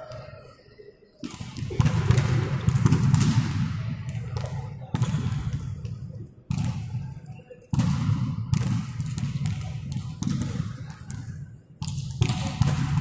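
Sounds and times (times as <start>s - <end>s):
volleyball thuds echoing: 1.2s - 6.9s, 11.8s - 13.0s.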